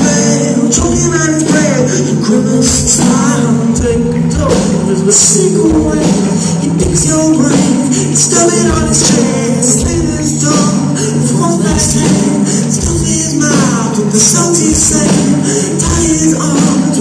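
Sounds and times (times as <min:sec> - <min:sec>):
drums: 0:00.0 - 0:17.0
live band playing: 0:00.0 - 0:17.0
person singing: 0:00.0 - 0:17.0.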